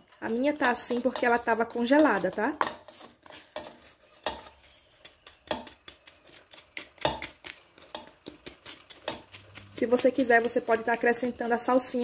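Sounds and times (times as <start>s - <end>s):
wooden spoon tapping and scraping: 0.0s - 12.0s.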